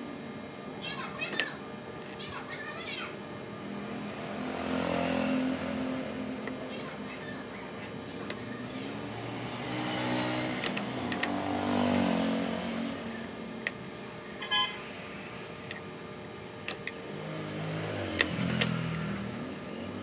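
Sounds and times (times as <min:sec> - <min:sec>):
vehicle engine passing by: 0:03.9 - 0:06.4, 0:08.9 - 0:13.4.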